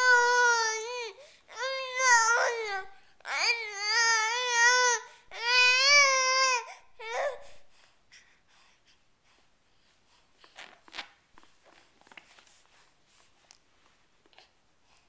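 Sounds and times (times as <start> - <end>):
infant crying: 0.0 - 7.4.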